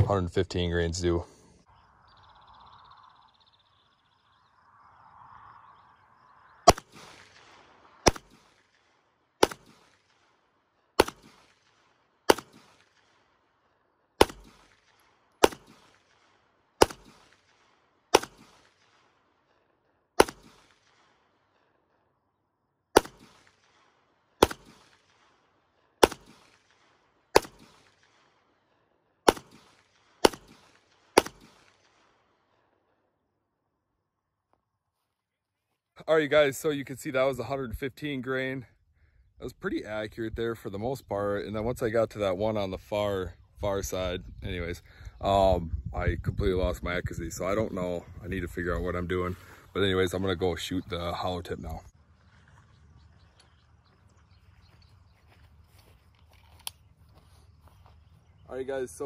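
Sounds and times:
pistol shots: 6.7s - 10.3s, 11.0s - 13.2s, 14.2s - 19.1s, 20.2s - 21.2s, 22.9s - 25.4s, 26.0s - 28.3s, 29.2s - 32.2s.

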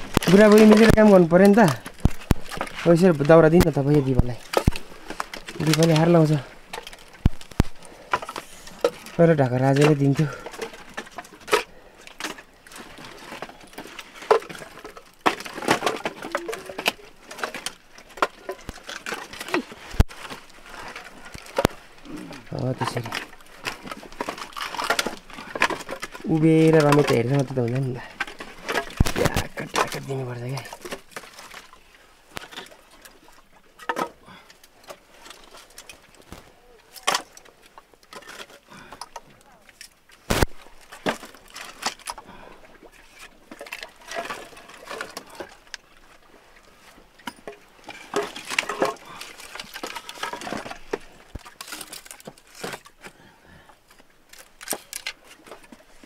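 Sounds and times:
firewood knocking together: 0.0s - 9.0s
firewood pieces knocking together: 0.0s - 45.8s, 47.2s - 53.7s, 54.3s - 56.0s.

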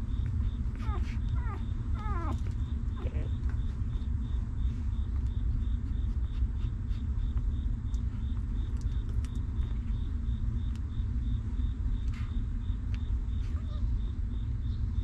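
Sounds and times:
steady low rumble: 0.0s - 15.0s
puppy whimpering: 0.2s - 3.6s, 13.4s - 14.0s.

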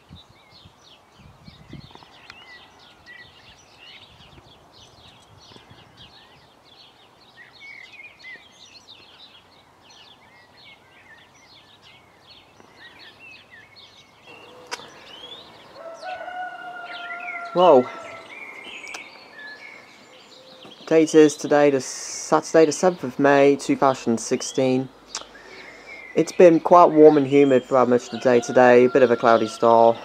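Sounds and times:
birds chirping and twittering: 0.0s - 30.0s
sharp click: 14.6s - 14.9s, 18.8s - 19.1s, 25.1s - 25.3s.

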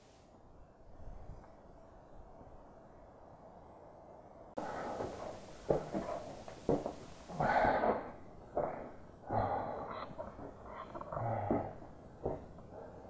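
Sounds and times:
person breathing hard: 4.6s - 13.0s.

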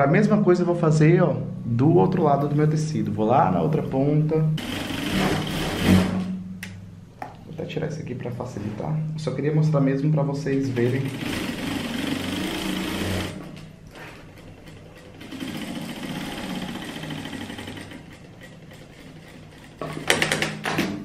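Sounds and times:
sewing machine stitching: 4.6s - 6.3s, 10.8s - 20.9s.

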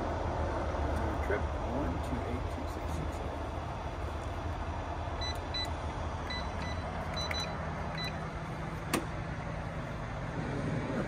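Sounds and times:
low engine rumble: 0.0s - 11.0s
keypad beeping: 6.3s - 8.2s.

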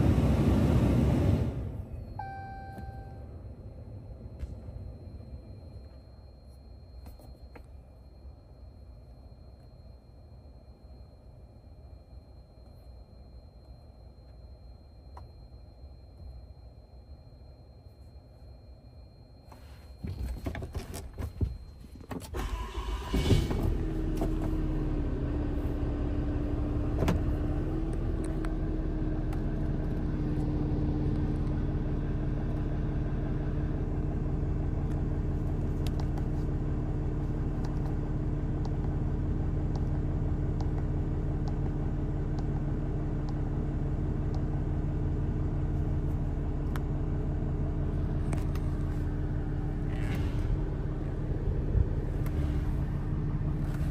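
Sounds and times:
diesel engine starting and idling: 0.0s - 5.7s, 22.2s - 53.9s.

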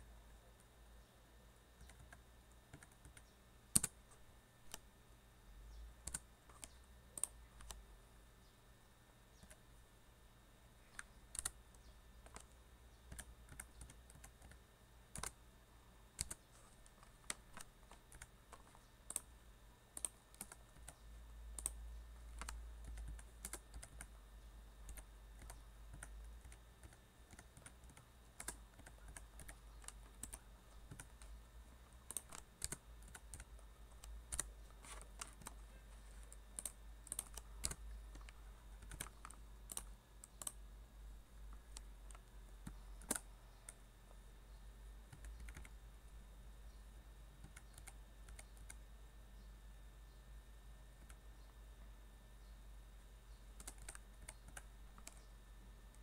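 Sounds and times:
low steady hum: 0.0s - 56.0s
typing on a keyboard: 1.8s - 4.0s, 6.0s - 7.8s, 10.9s - 11.6s, 12.2s - 15.4s, 16.2s - 19.3s, 20.0s - 21.0s, 21.6s - 24.1s, 24.8s - 31.4s, 32.0s - 35.6s, 36.2s - 40.6s, 41.5s - 43.8s, 45.1s - 45.7s, 47.4s - 48.8s, 53.6s - 55.3s.

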